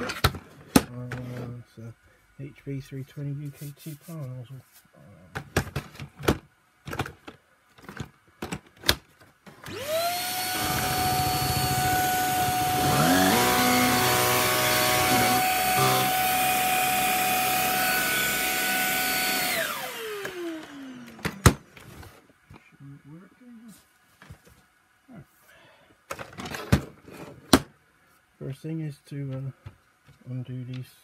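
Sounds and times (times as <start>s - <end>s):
vacuum cleaner motor whine: 9.5s - 21.6s.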